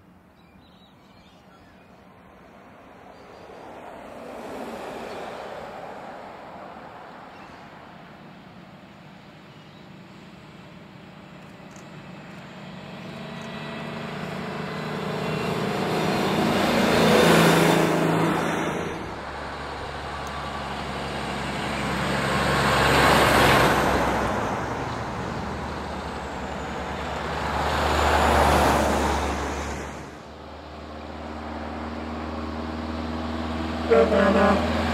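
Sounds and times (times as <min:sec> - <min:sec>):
bus passing: 0:01.4 - 0:34.9
truck passing: 0:02.1 - 0:34.9.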